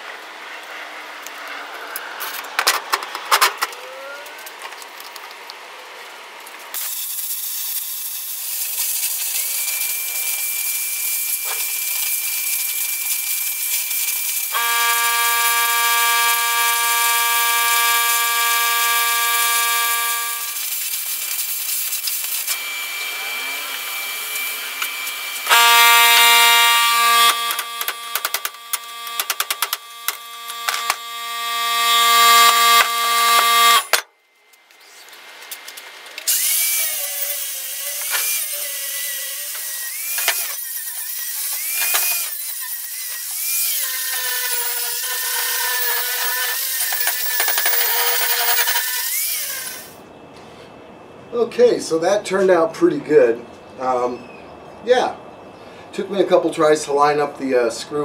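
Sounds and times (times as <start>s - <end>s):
sparks hissing: 6.4s - 31.2s
plasma cutter whine: 6.8s - 50.1s
angle grinder grinding steel: 8.1s - 34.1s, 36.3s - 50.0s
sharp clicks and knocks: 27.2s - 31.0s.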